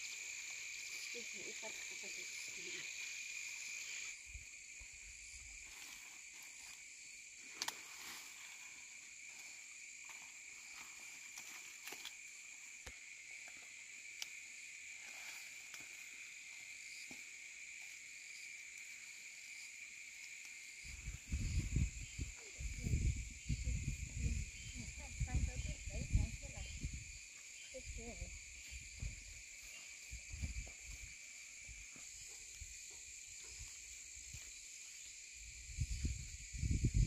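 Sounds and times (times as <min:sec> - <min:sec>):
insects trilling: 0:00.0 - 0:37.0
faint clicks: 0:07.6 - 0:07.8.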